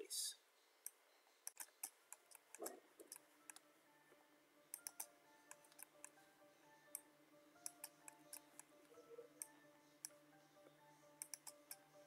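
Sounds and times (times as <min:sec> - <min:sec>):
quiet background music: 0:00.0 - 0:12.0
mouse and keyboard clicks: 0:00.8 - 0:03.7, 0:04.7 - 0:06.2, 0:06.9 - 0:08.8, 0:11.2 - 0:11.9.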